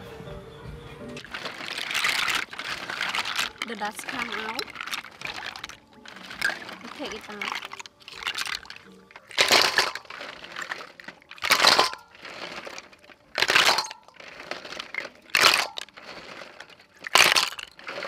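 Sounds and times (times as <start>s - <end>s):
shells grinding in metal bowl: 1.2s - 18.0s
shells rattling: 1.2s - 18.0s.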